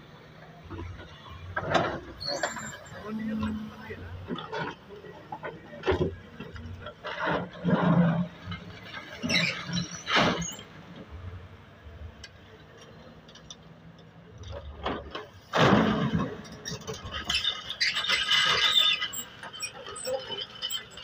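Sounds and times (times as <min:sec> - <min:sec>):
excavator engine drone: 0:00.0 - 0:17.7
high metallic squealing: 0:02.2 - 0:04.2.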